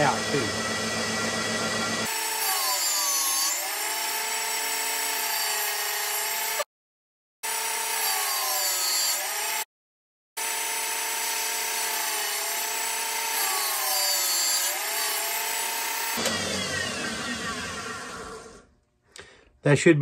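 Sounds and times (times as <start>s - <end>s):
valve grinder whining: 0.0s - 4.8s, 10.5s - 18.8s.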